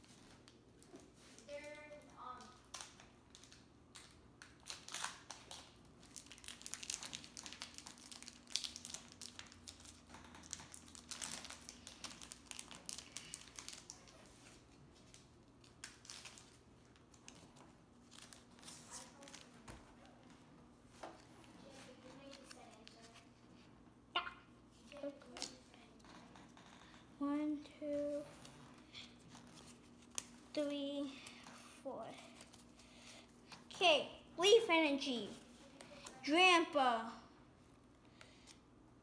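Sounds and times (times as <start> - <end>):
foil wrapper crinkling and tearing: 2.4 - 16.6, 17.2 - 19.5.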